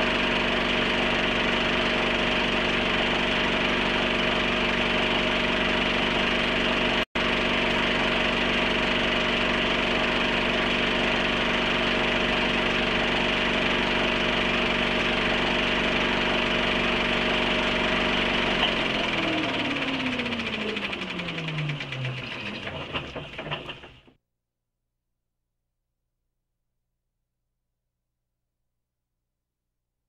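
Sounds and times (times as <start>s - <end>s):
film projector motor humming: 0.0s - 24.1s.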